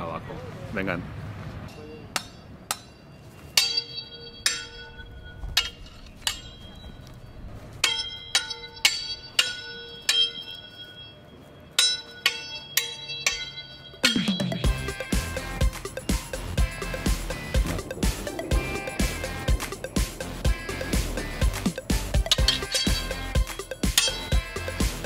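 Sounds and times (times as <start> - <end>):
steel swords clashing: 1.7 - 6.8, 7.8 - 15.6, 21.3 - 25.0.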